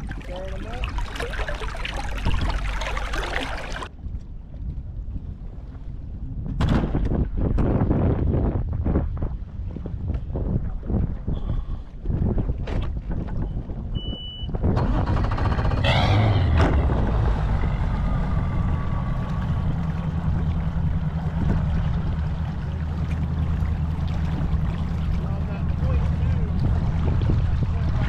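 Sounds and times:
outboard motor humming: 0.0s - 3.9s, 15.0s - 28.0s.

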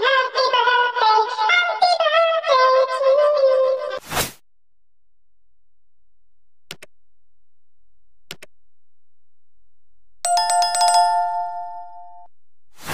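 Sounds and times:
notification bell chime: 10.3s - 12.3s.

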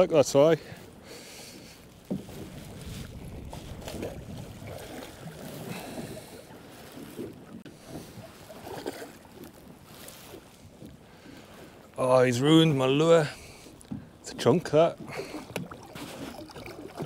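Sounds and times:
wind buffeting microphone: 0.0s - 11.9s
water lapping around boat: 0.0s - 17.0s.

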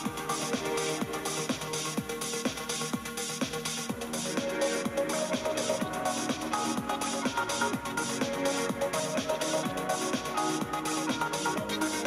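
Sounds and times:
electronic music with steady beat: 0.0s - 12.0s.

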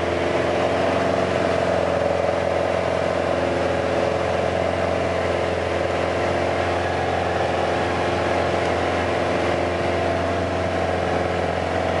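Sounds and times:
airplane engine and propeller drone: 0.0s - 12.0s.

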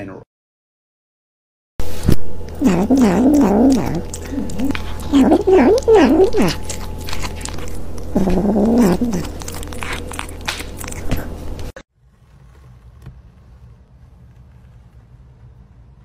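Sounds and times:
sharp clicks of biting: 2.0s - 11.7s
kitten growling: 2.0s - 11.8s.

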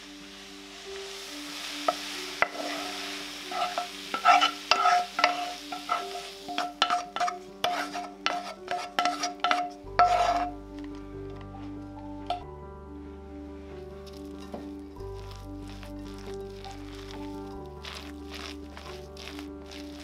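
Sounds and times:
pan faintly sizzling: 0.0s - 10.9s, 14.0s - 20.0s
spatula scraping frying pan: 1.9s - 10.6s, 15.6s - 20.0s.

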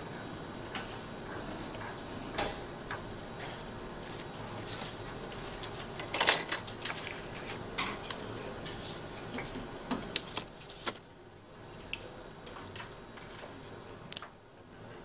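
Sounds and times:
paper sliding and rustling: 10.2s - 11.0s.

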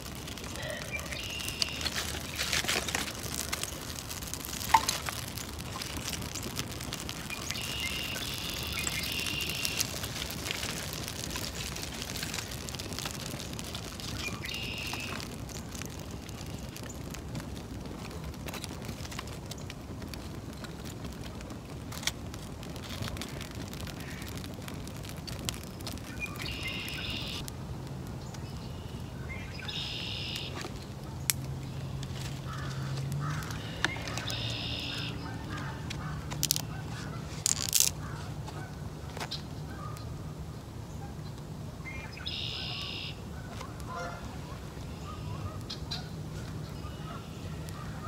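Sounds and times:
campfire crackling: 0.0s - 48.0s
sharp fire pop: 1.0s - 27.5s.

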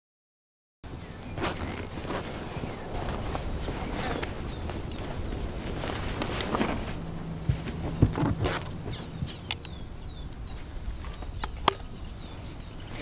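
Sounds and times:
bird chirping: 0.9s - 13.0s
sharp clicks and knocks of gear: 7.5s - 11.9s.

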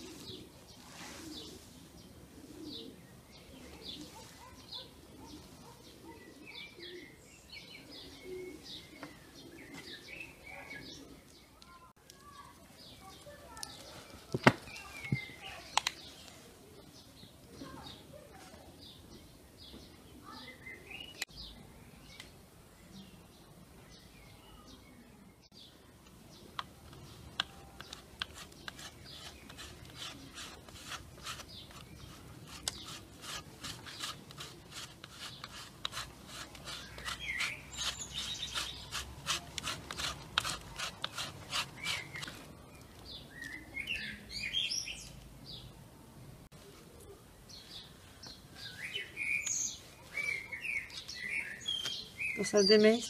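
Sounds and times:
birds chirping: 0.0s - 45.8s, 46.6s - 53.0s
cheese grated on metal grater: 27.8s - 42.4s.

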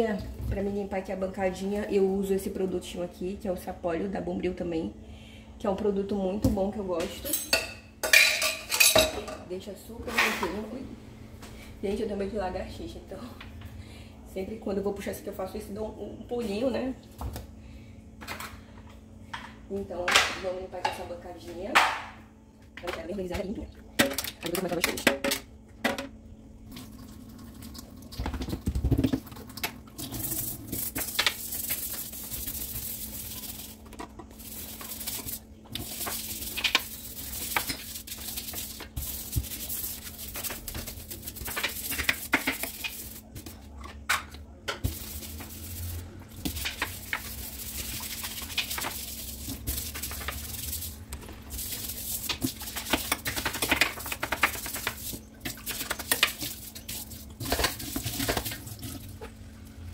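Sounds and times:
tap water running: 24.0s - 43.6s, 44.7s - 59.9s
brush scrubbing countertop: 30.1s - 43.7s, 44.8s - 59.3s
brush knocking against sink: 30.4s - 43.6s, 44.2s - 58.6s.

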